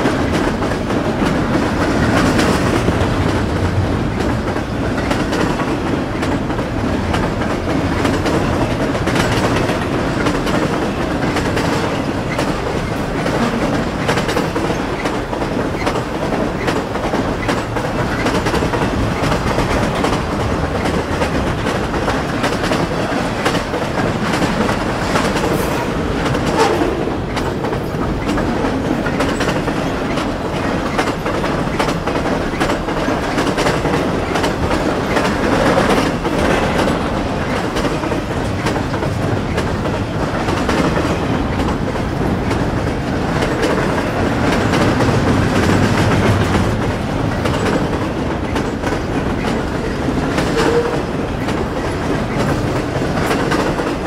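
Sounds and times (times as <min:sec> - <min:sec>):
freight train wheels on rail: 0:00.0 - 0:54.0
rail cars clicking and clattering: 0:00.0 - 0:54.0.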